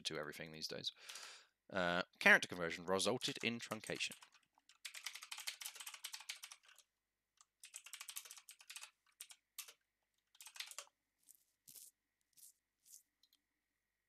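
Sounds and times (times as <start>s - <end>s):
computer keyboard typing: 3.2s - 10.9s.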